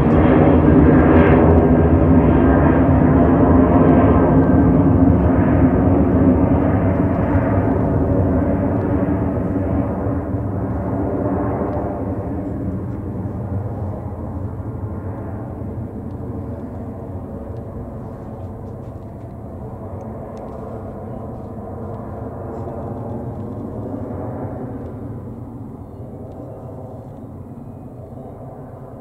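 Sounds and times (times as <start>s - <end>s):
jet engines at takeoff: 0.0s - 29.0s.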